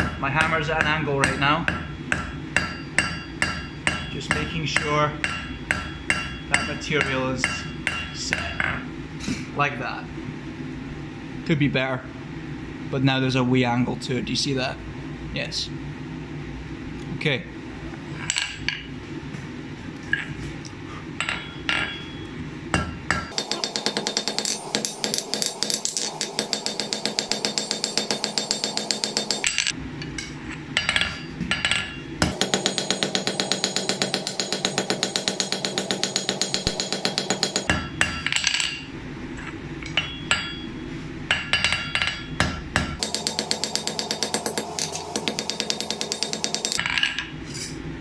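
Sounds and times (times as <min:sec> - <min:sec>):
hammer striking hot steel on anvil: 0:00.0 - 0:08.6, 0:21.2 - 0:38.9, 0:39.8 - 0:40.7, 0:41.3 - 0:47.3.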